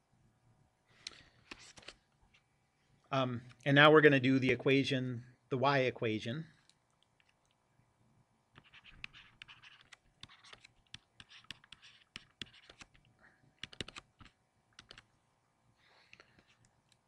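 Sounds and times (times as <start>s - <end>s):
stylus tapping and scratching screen: 1.1s - 2.4s, 8.5s - 15.1s, 16.2s - 17.0s
stylus clicks: 13.6s - 15.1s.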